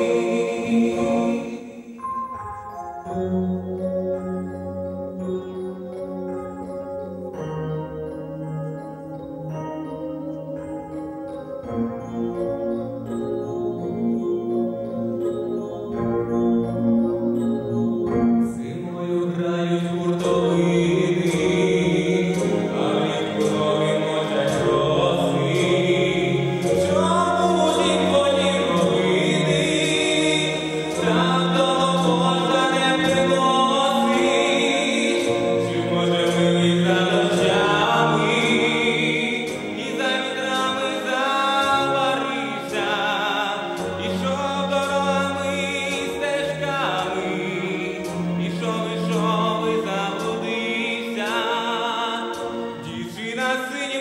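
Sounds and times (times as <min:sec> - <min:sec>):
man singing into microphone: 0:00.0 - 0:01.9, 0:18.4 - 0:54.0
backing track with beat: 0:21.3 - 0:42.8.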